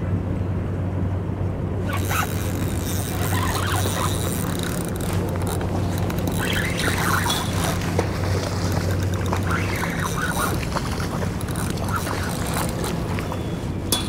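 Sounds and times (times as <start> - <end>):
ferry engine drone: 0.0 - 14.0
short high squeaks: 1.9 - 7.9, 8.9 - 13.8.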